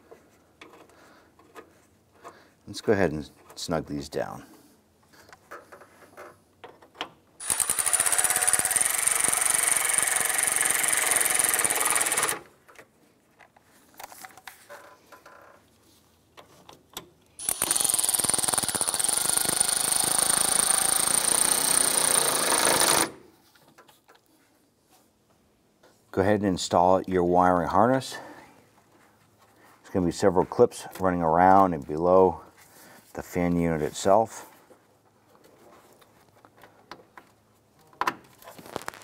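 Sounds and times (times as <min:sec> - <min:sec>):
power ratchet whining and clicking: 0:07.4 - 0:12.5, 0:17.4 - 0:23.2.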